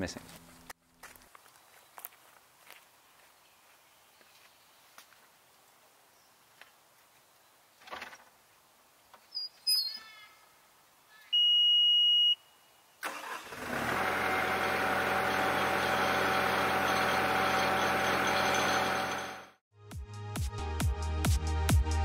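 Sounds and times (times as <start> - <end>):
diesel engine starting and idling: 13.0 - 19.6.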